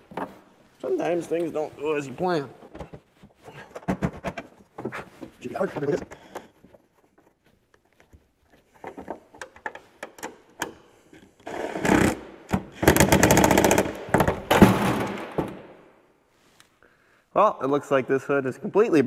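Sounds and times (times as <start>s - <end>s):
power tool rattling: 12.8s - 15.1s.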